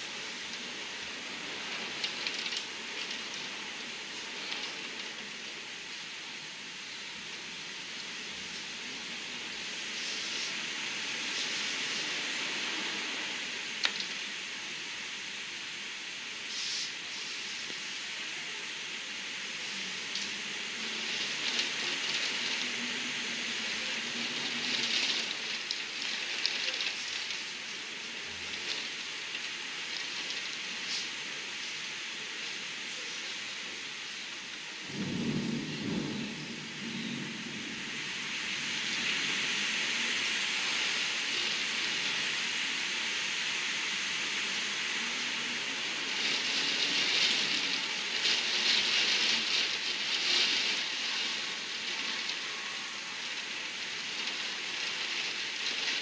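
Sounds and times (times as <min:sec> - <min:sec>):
heavy wind-driven rain: 0:00.0 - 0:56.0
rain striking window glass: 0:20.0 - 0:31.2, 0:45.4 - 0:56.0
gusting wind: 0:34.6 - 0:56.0
low rumble of thunder: 0:34.8 - 0:39.6.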